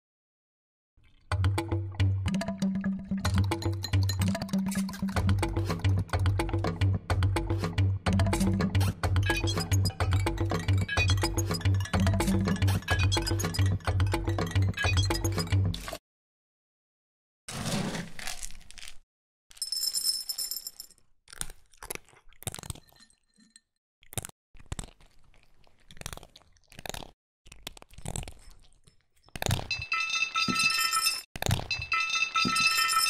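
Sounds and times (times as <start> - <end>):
crunches and cracks: 17.7 - 19.0, 24.0 - 29.7.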